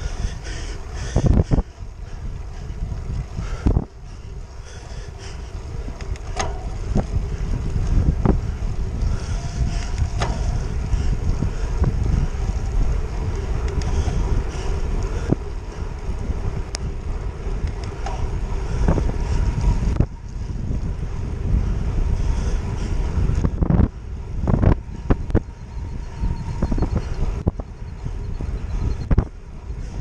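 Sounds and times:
tyre noise on wet road: 0.0 - 26.4
wind buffeting camera: 0.0 - 30.0
bike clicks and knocks: 4.8 - 8.5, 9.1 - 11.2, 12.4 - 20.2.

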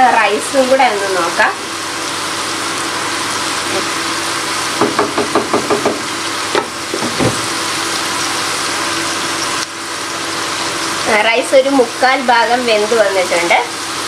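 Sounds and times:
onions sizzling in oil: 0.0 - 14.0.

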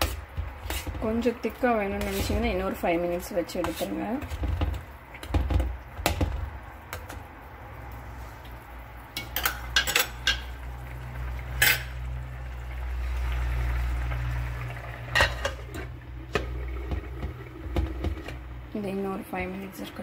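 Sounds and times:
metal tapping on steel pan: 9.2 - 10.5.

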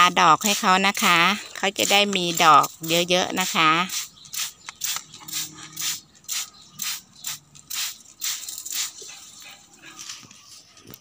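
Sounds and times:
spray bottle hissing: 1.8 - 9.1.

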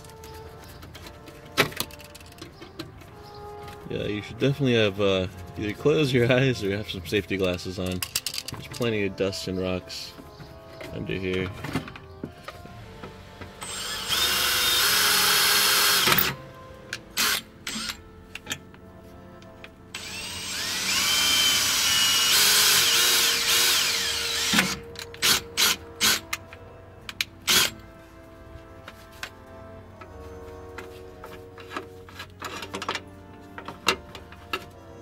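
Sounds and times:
cordless drill drilling: 13.6 - 16.4, 17.2 - 18.0, 20.0 - 26.2.

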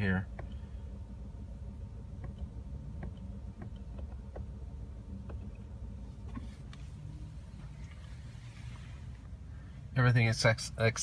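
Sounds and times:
steering wheel button clicks: 2.2 - 4.6, 5.2 - 5.6.

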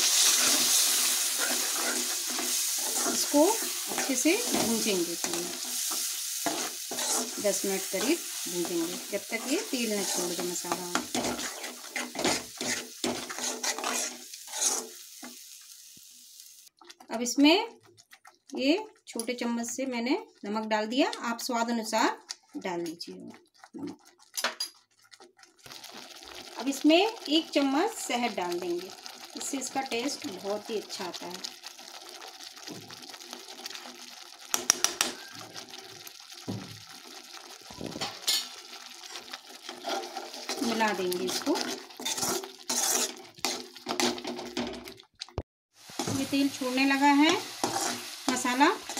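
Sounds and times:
spoon scraping metal pan: 0.0 - 15.4, 38.0 - 44.6, 45.9 - 48.9
paste sizzling in oil: 0.0 - 16.8, 23.6 - 44.6, 45.7 - 48.9
spices frying with hiss: 0.0 - 16.8, 25.7 - 44.2, 45.7 - 48.9.

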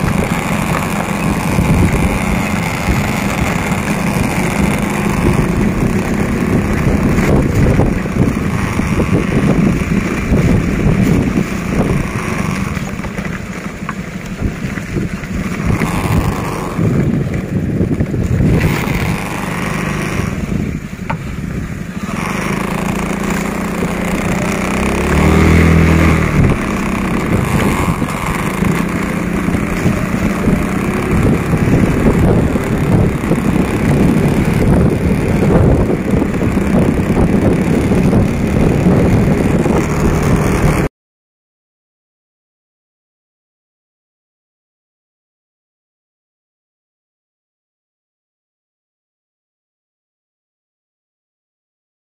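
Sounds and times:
wind rush on microphone: 0.0 - 13.4, 14.2 - 40.9
vehicle engine running: 0.0 - 40.9.

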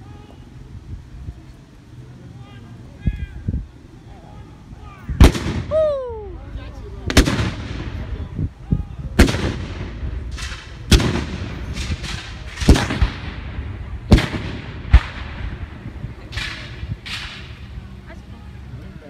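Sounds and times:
guns firing with echo: 5.2 - 5.7, 7.1 - 8.2, 9.2 - 17.6.

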